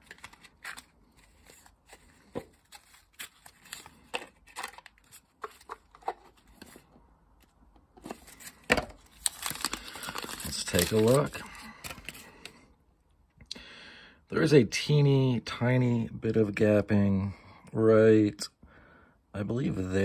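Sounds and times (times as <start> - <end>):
paper and cardboard rustling: 0.0 - 6.9, 8.0 - 12.2.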